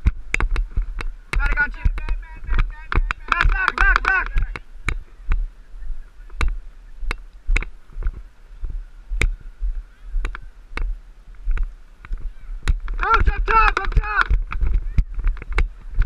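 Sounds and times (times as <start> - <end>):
lacrosse stick clacks and knocks: 0.0 - 5.4, 11.5 - 16.0
wind rumble on microphone: 0.0 - 16.0.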